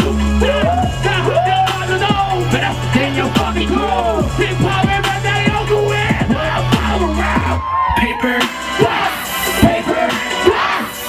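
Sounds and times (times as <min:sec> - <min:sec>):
deep sustained bass notes: 0:00.0 - 0:07.6
rapping over a beat: 0:00.0 - 0:11.0.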